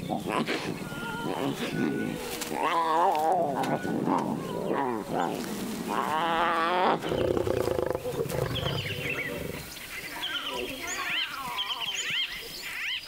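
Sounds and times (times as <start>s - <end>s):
lioness buzzing growl: 2.6s - 9.7s.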